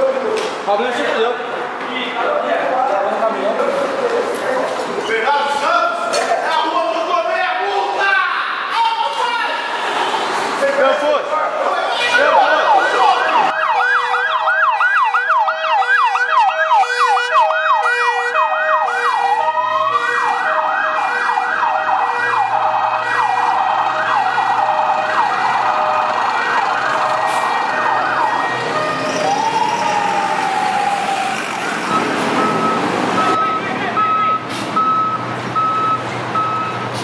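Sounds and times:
siren fast yelp: 12.0 - 31.8
siren slow rising wail: 12.0 - 36.6
two-tone hi-lo siren: 12.1 - 35.1.

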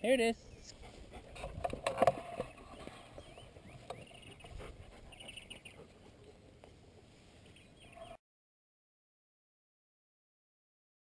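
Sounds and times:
small birds chirping: 0.0 - 8.2
soft rustling in grass: 0.3 - 1.4, 2.2 - 8.2.

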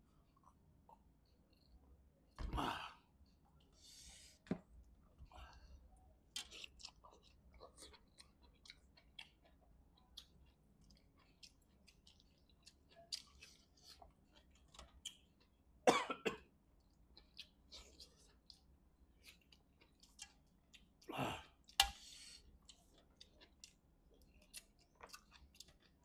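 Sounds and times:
chewing with wet smacks: 5.5 - 15.7, 16.8 - 26.0.

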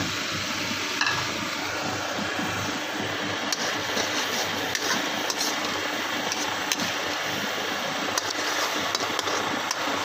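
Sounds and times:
spatula stirring and scraping: 3.5 - 10.0.

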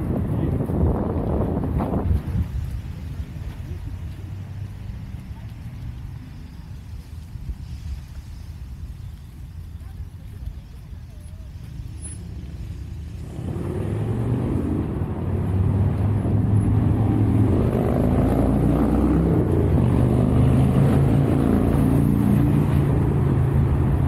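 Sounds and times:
vehicle engine humming: 0.0 - 24.0.

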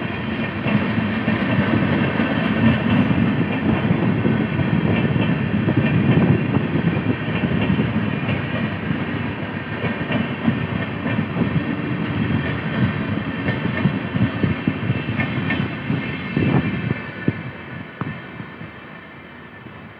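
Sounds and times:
train wheels rumbling on rail: 0.0 - 19.9
wheels clicking over rail joints: 0.3 - 15.9.

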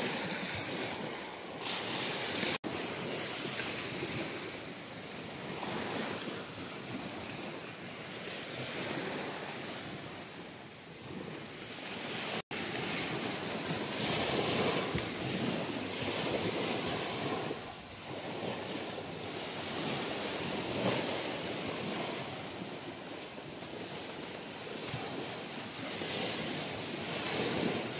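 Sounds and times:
surf washing onto beach: 0.0 - 27.9
wind on microphone: 0.0 - 27.9.

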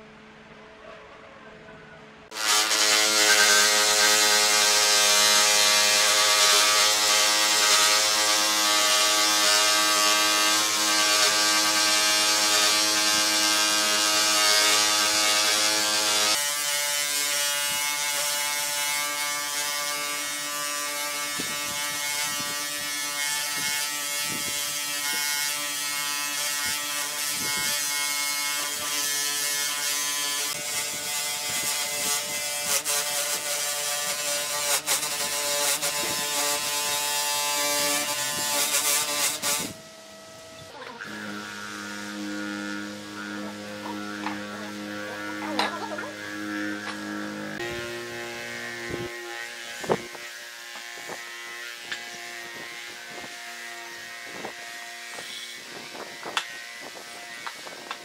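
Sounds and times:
rotary tool sanding wood: 2.3 - 58.0.

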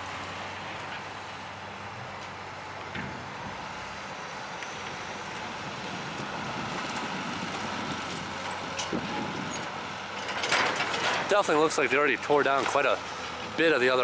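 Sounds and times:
excavator diesel engine running: 0.0 - 14.0
faint debris clattering: 8.2 - 11.8.

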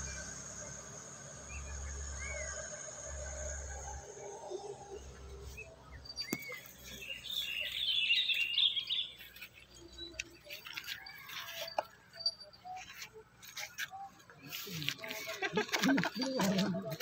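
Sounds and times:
small birds chirping: 4.4 - 17.0.

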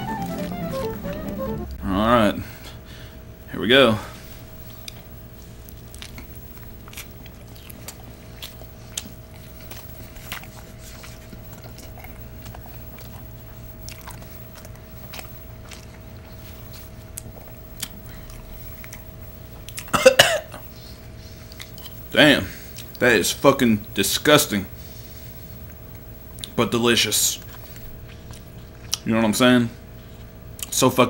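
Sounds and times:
person chewing: 5.6 - 19.9, 21.4 - 22.0, 27.4 - 29.1.

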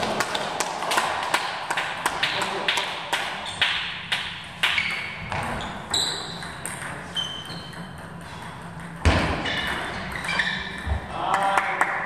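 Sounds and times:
ball bouncing with high pings: 0.2 - 12.0.

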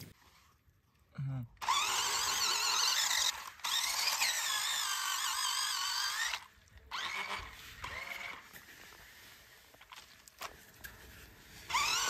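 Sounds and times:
toy truck electric motor whining: 1.6 - 8.5, 11.6 - 12.0.

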